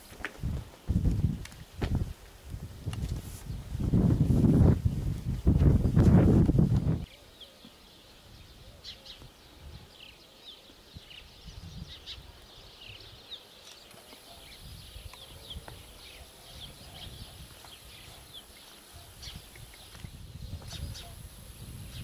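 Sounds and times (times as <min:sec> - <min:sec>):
wind rumble on microphone: 0:00.2 - 0:07.1, 0:10.9 - 0:13.3, 0:14.5 - 0:22.0
small birds chirping: 0:07.0 - 0:22.0.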